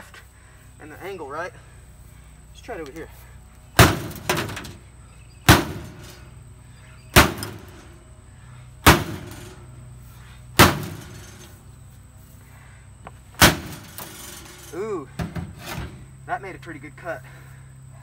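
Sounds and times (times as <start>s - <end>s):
axe striking sheet metal: 3.8s - 4.7s, 5.5s - 6.3s, 7.2s - 7.9s, 8.8s - 9.6s, 10.6s - 11.5s, 13.4s - 14.4s.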